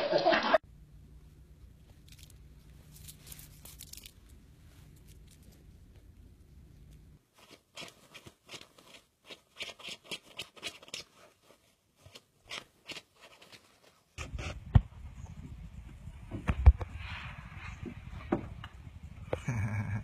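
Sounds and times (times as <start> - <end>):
low steady rumble: 0.6 - 7.2
cat licking and nibbling fur: 1.8 - 14.2.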